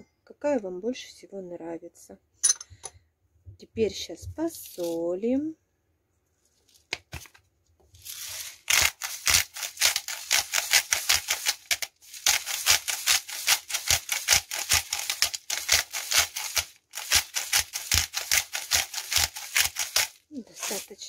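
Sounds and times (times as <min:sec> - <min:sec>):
salt grinder crunching clicks: 0:08.6 - 0:20.2.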